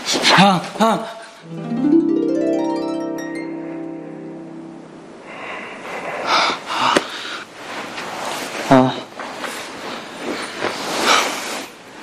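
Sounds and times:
plucked harp-like notes: 0:01.5 - 0:05.2.

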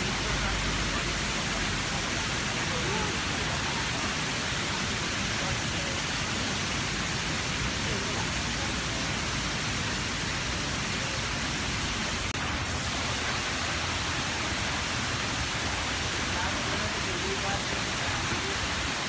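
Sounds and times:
waterfall roaring: 0:00.0 - 0:19.0.

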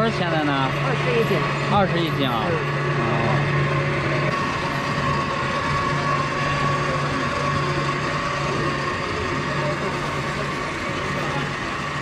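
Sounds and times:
electric grinding mill running: 0:00.0 - 0:12.0.

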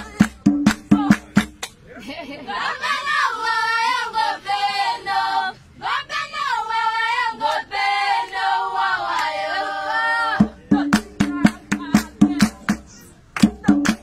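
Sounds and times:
fast percussion beats: 0:00.0 - 0:01.8, 0:10.4 - 0:14.0
women singing together: 0:02.4 - 0:14.0.

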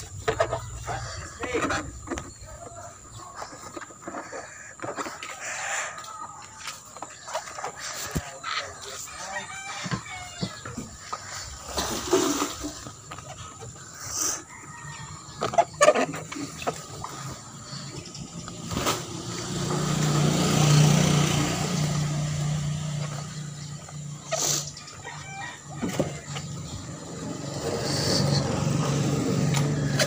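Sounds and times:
vehicle engine passing by: 0:17.1 - 0:25.0, 0:26.2 - 0:30.0.

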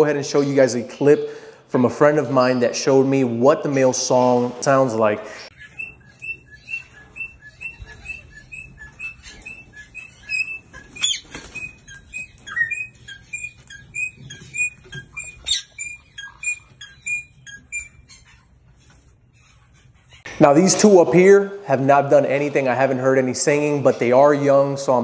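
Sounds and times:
bird whistling high notes: 0:05.5 - 0:18.0.

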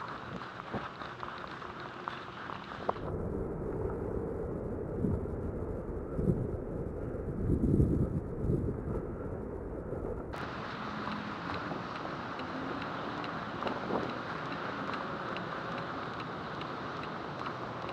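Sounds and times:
steady rushing hiss: 0:00.0 - 0:03.1, 0:10.4 - 0:17.9
wind buffeting microphone: 0:00.0 - 0:17.9
faint regular ticks: 0:10.4 - 0:17.9.

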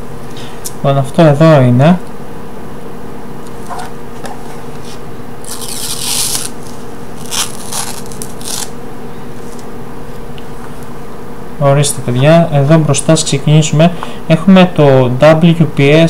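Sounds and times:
steady low hum: 0:00.0 - 0:16.0
plastic wrapping rustling: 0:05.4 - 0:08.7.

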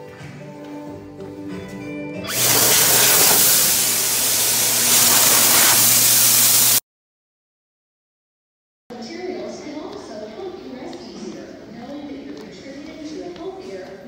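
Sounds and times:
hand dryer blowing air: 0:02.3 - 0:06.8.

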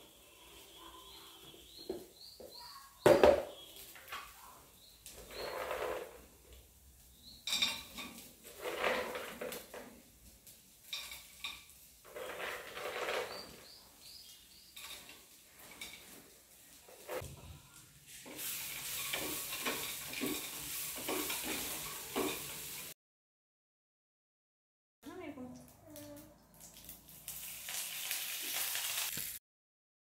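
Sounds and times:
peanuts rattling in frying pan: 0:18.4 - 0:22.9, 0:26.7 - 0:29.4.

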